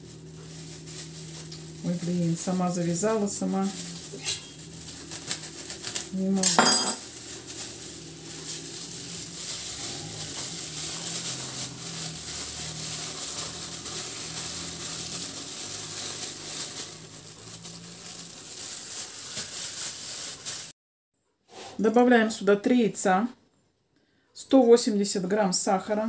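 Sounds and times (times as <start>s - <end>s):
low hum: 0.0s - 18.8s
cloth and curd squishing: 7.0s - 20.7s.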